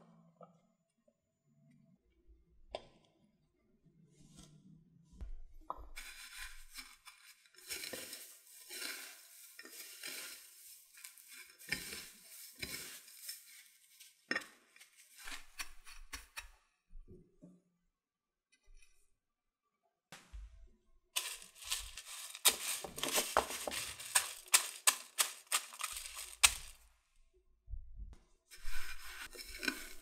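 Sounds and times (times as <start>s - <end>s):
breadcrumbs rustling and crackling: 6.0s - 16.2s, 21.2s - 27.0s, 28.6s - 30.0s.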